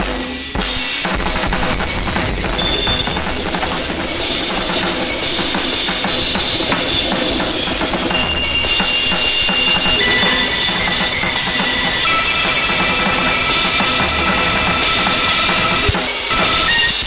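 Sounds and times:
high whistling tones: 0.0 - 17.0
low churning noise: 0.0 - 17.0
wall of distorted noise: 0.0 - 17.0.

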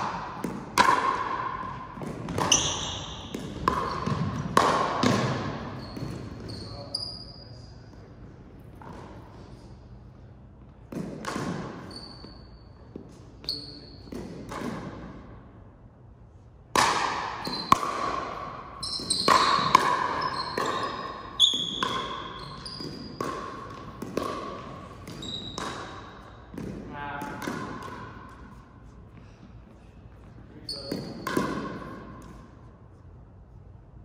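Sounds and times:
ball hits and thuds: 0.0 - 6.5, 10.8 - 12.4, 14.0 - 15.2, 16.7 - 28.5, 30.7 - 32.4
shoe squeaks: 2.4 - 4.4, 5.6 - 7.9, 11.8 - 14.1, 17.4 - 17.8, 18.8 - 23.2, 24.9 - 26.4, 30.6 - 31.4.

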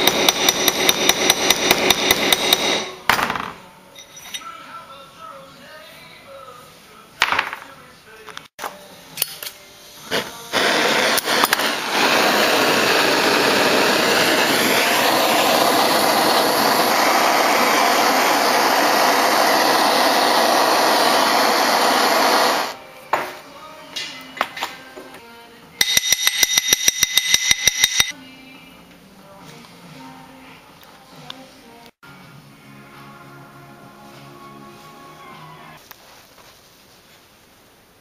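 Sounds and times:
gas torch flame hissing: 0.0 - 3.0, 9.8 - 22.8
tools knocking and clicking: 25.8 - 28.1.

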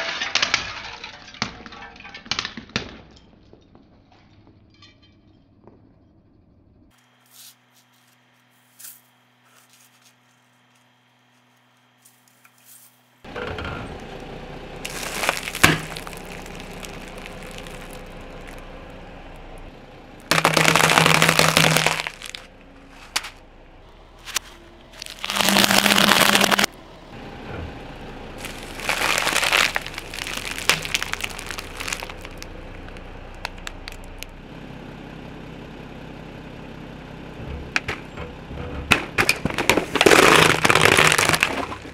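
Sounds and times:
objects crunching under car tyre: 6.9 - 26.8, 28.0 - 34.4, 37.6 - 41.9.

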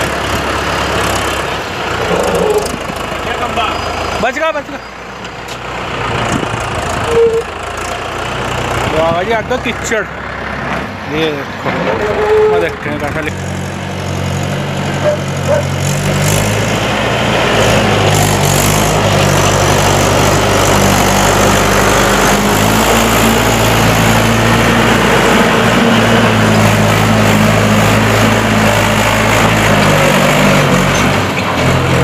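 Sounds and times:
tractor diesel engine under load: 0.0 - 32.0.

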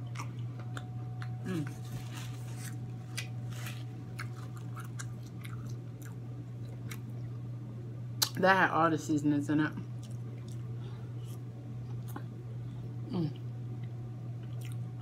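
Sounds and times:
wet chewing and mouth smacks: 0.0 - 1.9, 2.5 - 7.2, 10.0 - 12.3, 13.8 - 15.0
steady low hum: 0.0 - 15.0.

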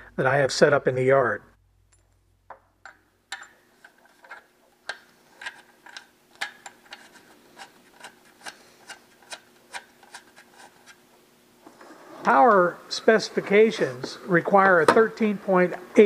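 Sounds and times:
metal clicks of screwing plug: 2.5 - 6.8.

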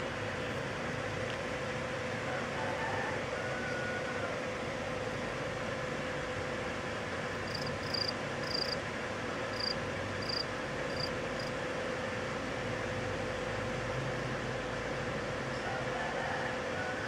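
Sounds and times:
faint hum: 0.0 - 17.0
cricket chirping: 7.4 - 8.8, 9.5 - 11.5.

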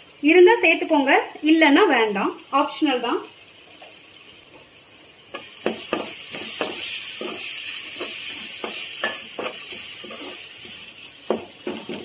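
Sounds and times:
vegetables sizzling in a pan: 0.0 - 12.0
spatula scraping a pan: 5.3 - 12.0.

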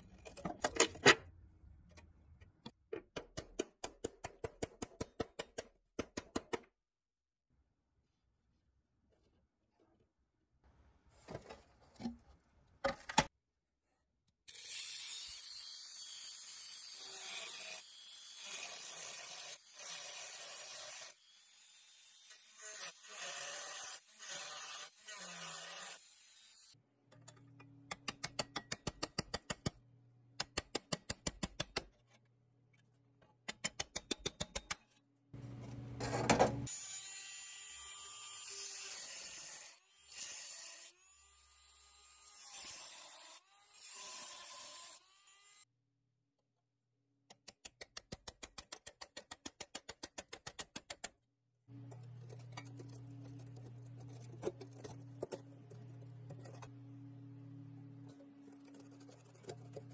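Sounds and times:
rotary tool grinding metal: 14.5 - 26.8, 51.9 - 56.7.

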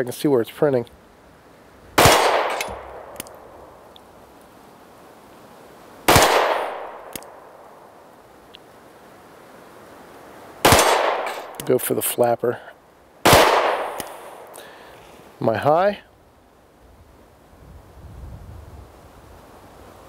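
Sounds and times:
pistol shots with echo: 2.0 - 3.4, 6.1 - 7.4, 10.6 - 11.7, 13.2 - 14.3
faint light tick: 8.5 - 8.7.

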